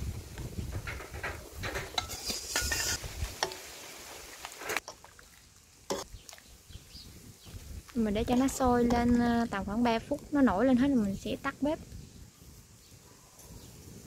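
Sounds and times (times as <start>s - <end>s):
ladle scraping metal pot: 0.8s - 3.7s, 5.9s - 6.2s.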